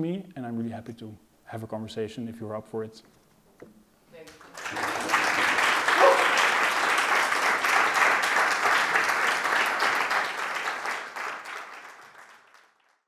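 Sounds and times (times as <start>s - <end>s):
audience applauding: 4.3s - 13.0s.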